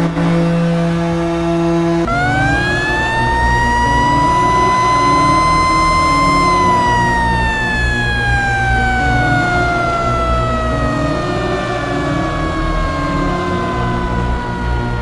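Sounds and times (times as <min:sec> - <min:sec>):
hockey goal siren winding: 0:02.1 - 0:15.0.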